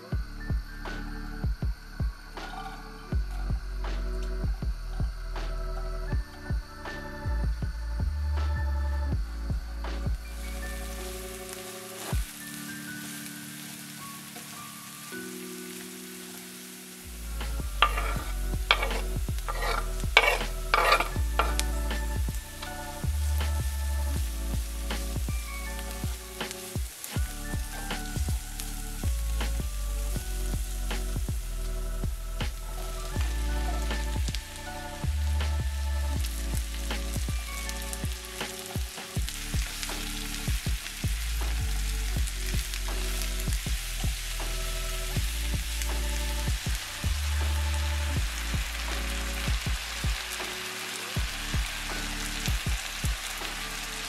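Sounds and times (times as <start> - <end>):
background music: 0.0 - 54.0
onion sizzling in frying pan: 10.0 - 54.0
stirring in pan: 10.3 - 54.0
plastic spatula scraping pan: 17.8 - 21.6.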